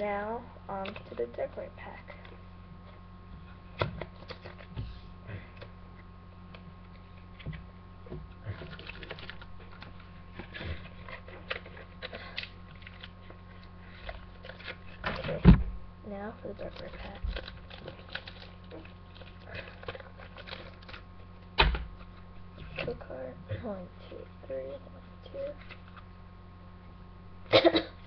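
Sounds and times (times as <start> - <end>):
foil pack rustling and crinkling: 8.4 - 15.6, 16.4 - 23.1.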